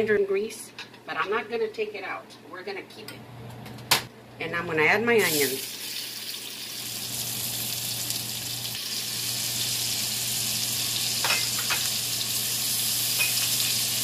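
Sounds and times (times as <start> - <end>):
onions sizzling in grease: 5.2 - 14.0.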